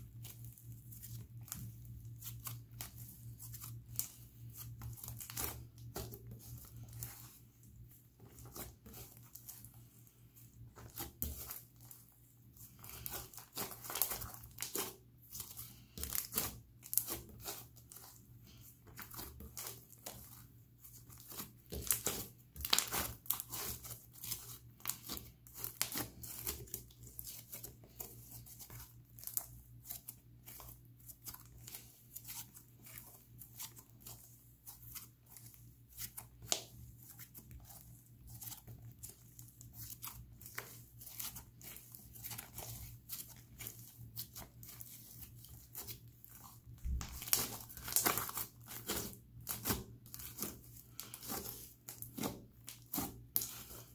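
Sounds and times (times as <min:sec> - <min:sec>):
sticky slime crackles and pops: 0:46.8 - 0:50.4.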